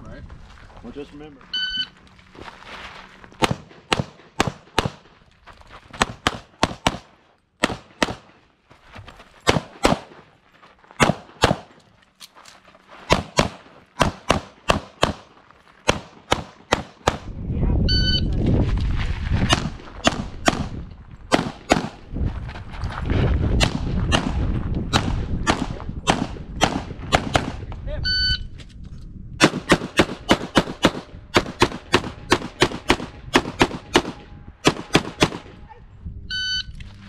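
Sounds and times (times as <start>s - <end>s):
pistol shots: 3.4s - 5.1s, 6.0s - 8.4s, 9.4s - 10.2s, 11.0s - 11.8s, 13.1s - 17.3s, 19.5s - 22.0s, 23.6s - 27.7s, 29.4s - 35.6s.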